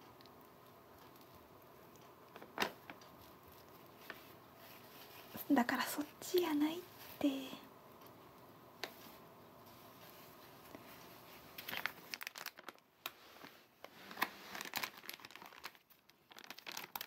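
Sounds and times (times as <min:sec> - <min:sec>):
plastic bag crinkling: 0:01.0 - 0:07.5, 0:10.1 - 0:17.0.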